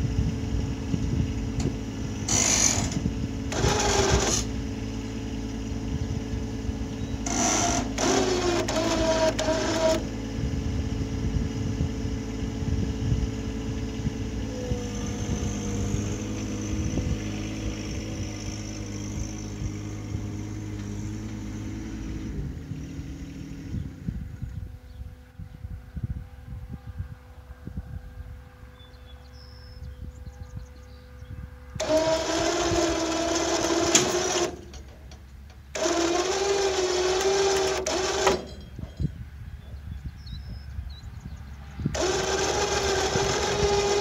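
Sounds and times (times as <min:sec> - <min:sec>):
tractor engine running under load: 0:00.0 - 0:44.0
loud grating bursts: 0:02.2 - 0:04.6, 0:07.2 - 0:10.2, 0:31.8 - 0:39.0, 0:41.9 - 0:44.0.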